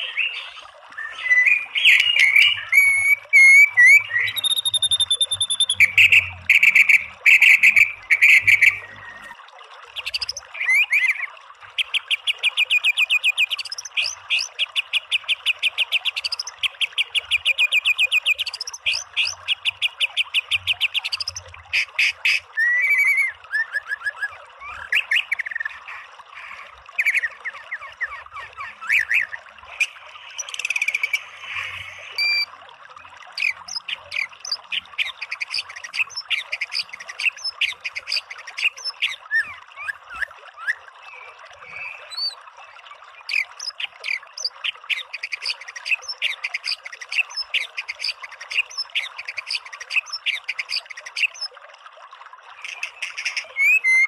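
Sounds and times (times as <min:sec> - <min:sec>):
songbird whistling: 0:00.0 - 0:09.3, 0:22.6 - 0:24.1, 0:30.4 - 0:32.5.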